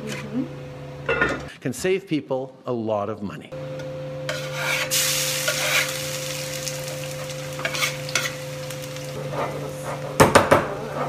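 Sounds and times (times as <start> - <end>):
wooden spoon scraping pan: 4.3 - 5.9, 7.6 - 8.4, 9.2 - 11.0
garlic sizzling in oil: 4.3 - 10.2.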